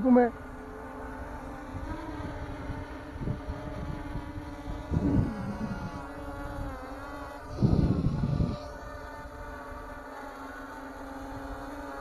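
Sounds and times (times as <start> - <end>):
drone propellers humming: 0.0 - 12.0
wind rumble on microphone: 1.1 - 9.9.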